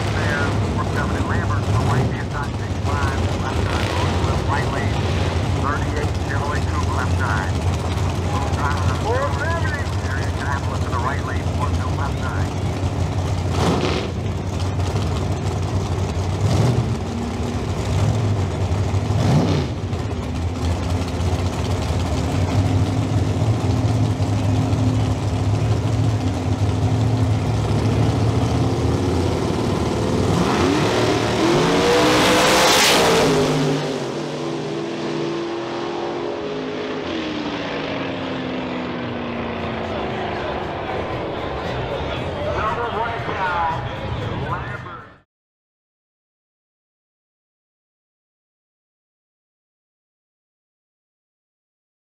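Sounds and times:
drag race cars idling: 0.0 - 31.8, 36.6 - 45.2
engines at full throttle: 0.0 - 45.1.

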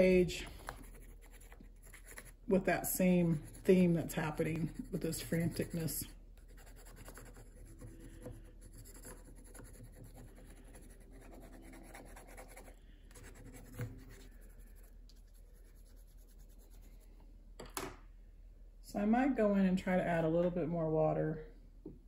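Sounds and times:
pencil scratching on paper: 0.0 - 17.1.

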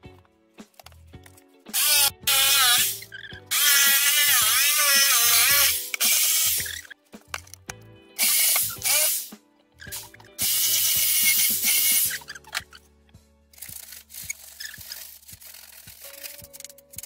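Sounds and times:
background music: 0.0 - 17.0
power tool running: 1.7 - 6.8, 8.2 - 9.2, 9.9 - 12.2
file rasping: 1.7 - 6.9.

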